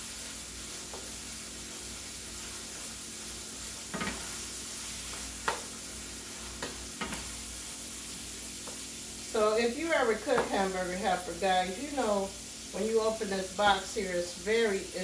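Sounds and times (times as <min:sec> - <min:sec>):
meat and onions sizzling in a pan: 0:00.0 - 0:15.0
wooden spoon knocking and scraping pan: 0:03.8 - 0:04.4, 0:06.5 - 0:07.3.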